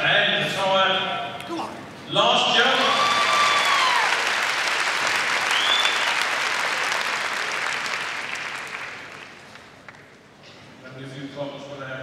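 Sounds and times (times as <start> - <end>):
crowd applauding: 2.6 - 10.2.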